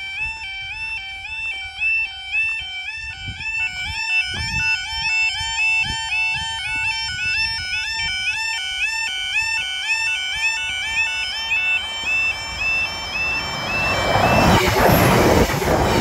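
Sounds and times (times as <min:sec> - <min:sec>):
level crossing alarms warbling: 0:00.0 - 0:16.0
approaching diesel train rushing: 0:10.7 - 0:16.0.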